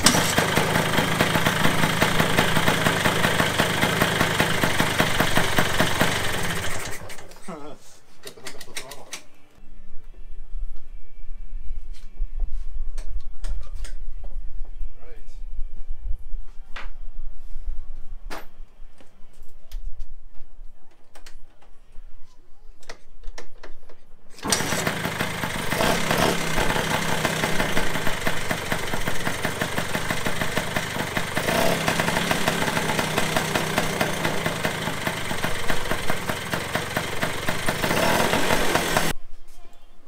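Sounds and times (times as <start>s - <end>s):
kick-start knocks: 0.0s - 0.6s
two-stroke engine running: 0.0s - 7.1s, 24.4s - 39.1s.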